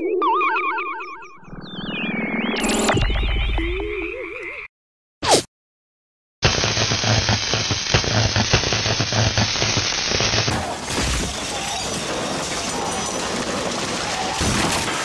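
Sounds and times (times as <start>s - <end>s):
cracks and bangs: 10.2s - 15.0s
breaking glass crashes: 10.5s - 15.0s.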